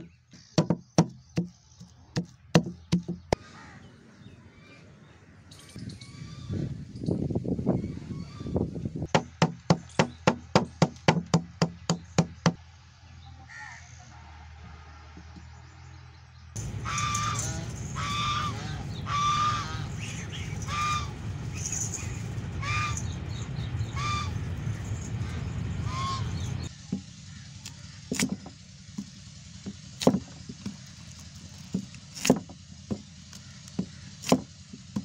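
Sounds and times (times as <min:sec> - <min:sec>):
pestle pounding in wooden mortar: 0:00.6 - 0:03.4
geese honking: 0:16.6 - 0:26.7.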